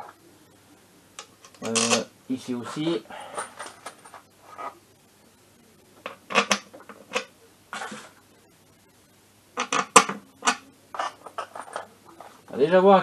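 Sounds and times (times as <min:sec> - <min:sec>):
metal bolts clinking and scraping: 0:09.6 - 0:11.9.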